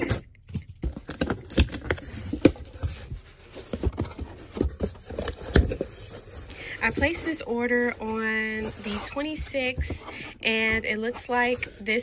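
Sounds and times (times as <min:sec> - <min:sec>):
cardboard flaps knocking and scraping: 0:00.7 - 0:06.2, 0:08.6 - 0:11.5.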